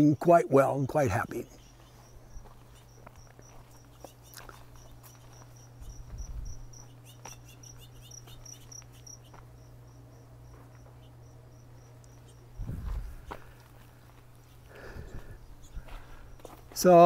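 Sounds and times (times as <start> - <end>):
cricket chirping: 0.2 - 13.4.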